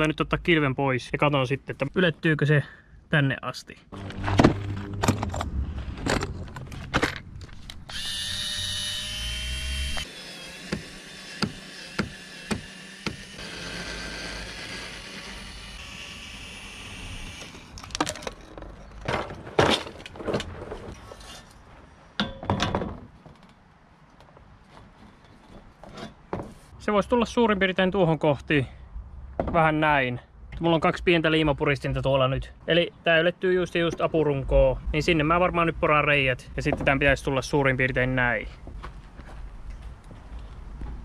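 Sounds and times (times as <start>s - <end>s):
cordless drill whining: 7.9s - 17.9s.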